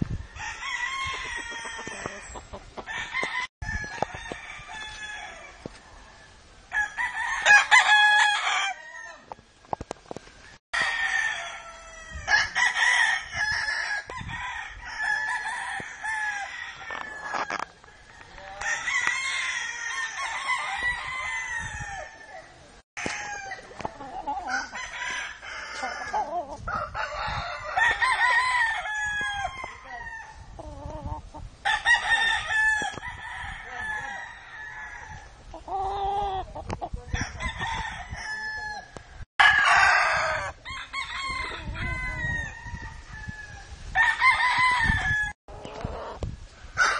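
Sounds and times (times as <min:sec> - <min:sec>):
roosters crowing: 0:00.2 - 0:09.8, 0:10.4 - 0:46.9
chickens clucking: 0:01.4 - 0:03.3, 0:23.1 - 0:24.8, 0:30.5 - 0:31.5, 0:35.5 - 0:37.2, 0:45.5 - 0:46.9.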